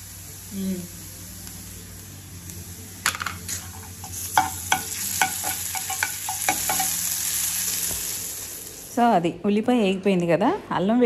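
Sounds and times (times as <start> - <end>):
food sizzling in hot oil: 0.0 - 9.2
spoon scraping and knocking pan: 3.1 - 7.0.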